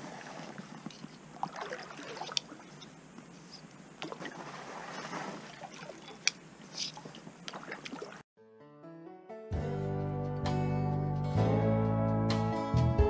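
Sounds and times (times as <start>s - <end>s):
paddle swishing through water: 0.0s - 8.2s.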